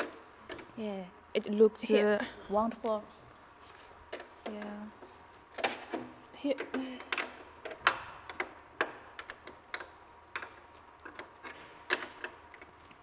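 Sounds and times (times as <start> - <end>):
hard plastic parts clicking: 5.5 - 12.7.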